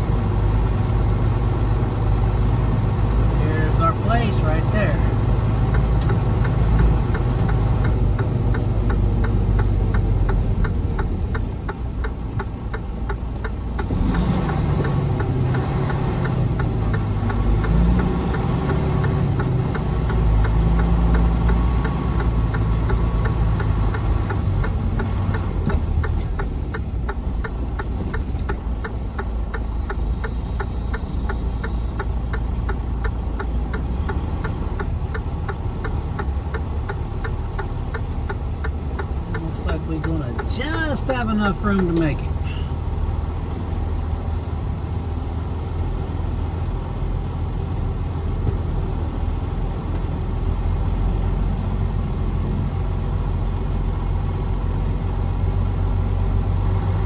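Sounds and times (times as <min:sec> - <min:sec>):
truck diesel engine running: 0:00.0 - 0:57.0
turn signal ticking: 0:00.0 - 0:57.0.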